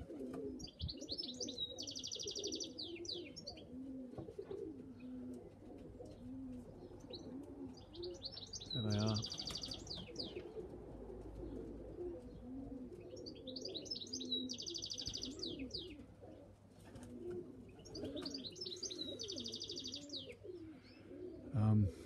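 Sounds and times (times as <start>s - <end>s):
pigeons cooing: 0.0s - 22.0s
songbird trilling: 0.6s - 3.7s, 6.8s - 10.5s, 13.1s - 16.0s, 17.8s - 20.4s.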